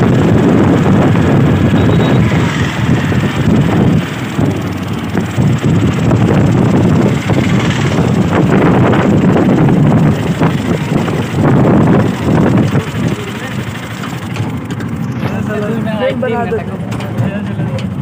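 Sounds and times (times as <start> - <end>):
wind buffeting microphone: 0.0 - 15.7
road rumble: 0.0 - 18.0
vehicle knocks and rattles: 3.2 - 15.7, 16.6 - 18.0.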